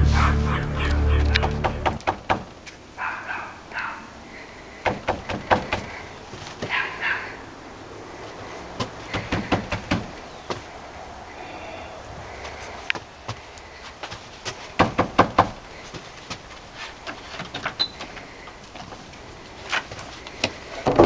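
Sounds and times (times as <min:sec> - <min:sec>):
dog barking: 0:03.0 - 0:04.2, 0:06.7 - 0:07.4.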